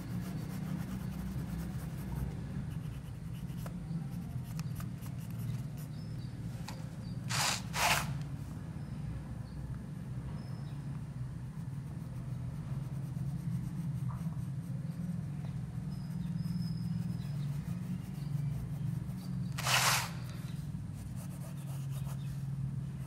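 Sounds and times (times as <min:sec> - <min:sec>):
pencil scratching on paper: 0:00.0 - 0:06.0, 0:11.4 - 0:22.6
steady low hum: 0:00.0 - 0:23.0
loud scratchy rustle: 0:07.3 - 0:08.2, 0:17.2 - 0:22.4.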